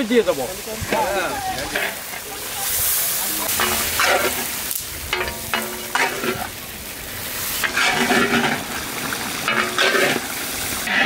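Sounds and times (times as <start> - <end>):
curry sizzling in a pan: 0.0 - 11.0
metal ladle scraping a pan: 1.7 - 6.6, 7.4 - 8.8, 9.4 - 11.0.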